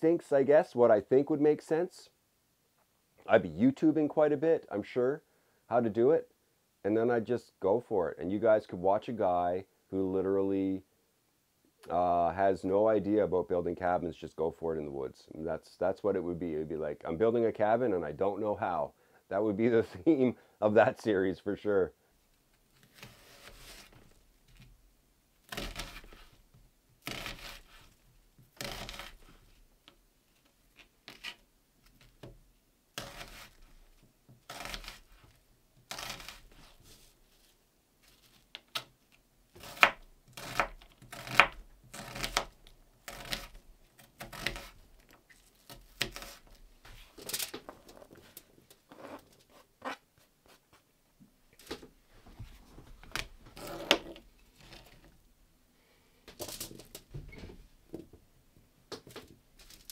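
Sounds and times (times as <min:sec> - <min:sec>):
knife chopping onion on cutting mat: 0:39.6 - 0:42.5.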